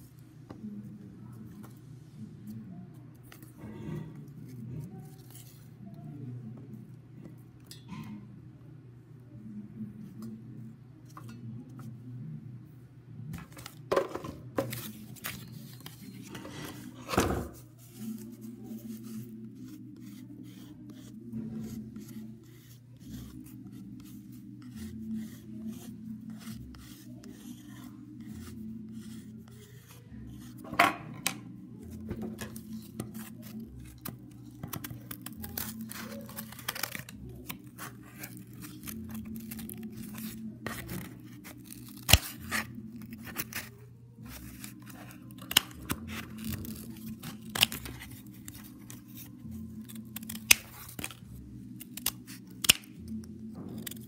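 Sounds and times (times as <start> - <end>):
scissors snipping: 32.5 - 43.7, 44.3 - 51.2, 51.8 - 54.0.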